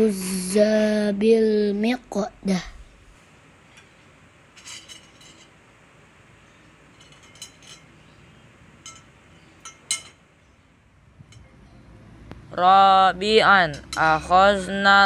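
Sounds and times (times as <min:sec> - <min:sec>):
spoons clinking against plates: 0:04.6 - 0:05.6, 0:06.9 - 0:08.1, 0:08.8 - 0:10.2.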